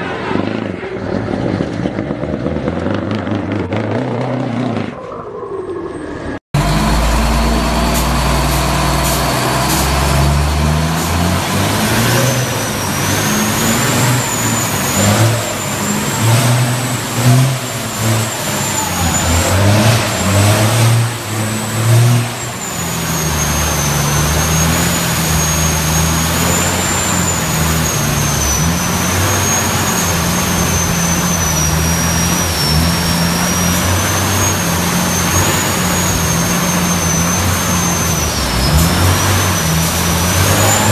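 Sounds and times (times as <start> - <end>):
truck diesel engine revving: 6.6 - 40.9.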